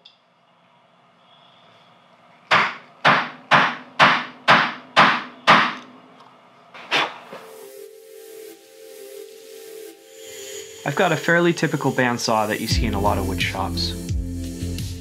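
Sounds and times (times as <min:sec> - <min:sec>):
sharp wooden knocks: 0:02.5 - 0:05.8
steady tone with hiss: 0:07.0 - 0:14.1.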